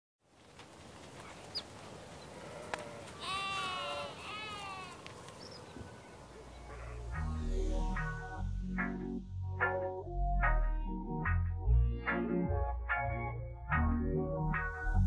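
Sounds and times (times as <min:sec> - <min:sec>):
animal bleating: 0:02.4 - 0:05.1
music: 0:06.5 - 0:15.0.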